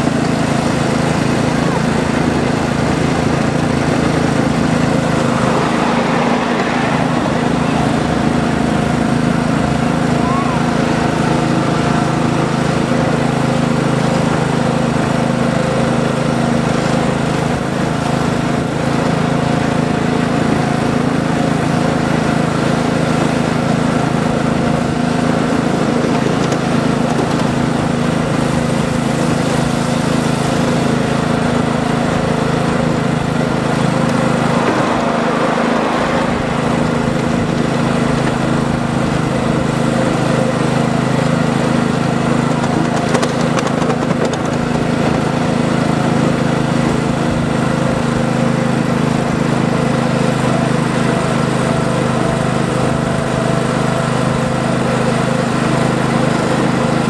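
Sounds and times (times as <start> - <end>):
miniature train mechanical drone: 0.0 - 57.0.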